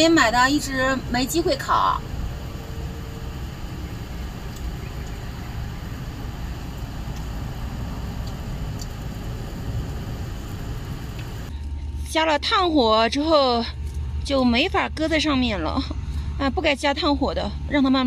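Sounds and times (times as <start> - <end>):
low background rumble: 0.0 - 18.0
faint light ticks: 4.5 - 5.2, 8.2 - 9.0.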